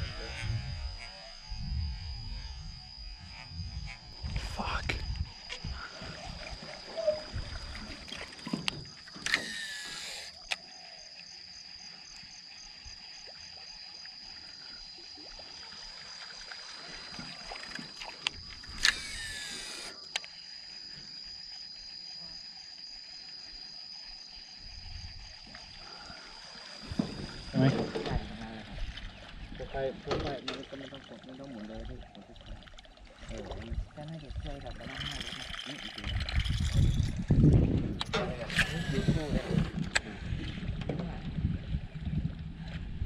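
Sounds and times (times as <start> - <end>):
high-pitched pulsing whine: 0.0 - 10.9, 17.0 - 20.4, 38.0 - 40.5
fishing reel spool whirring: 0.0 - 11.6, 16.8 - 20.6, 38.0 - 40.1
sharp clicks: 9.2 - 10.6, 18.2 - 20.3, 38.0 - 40.0.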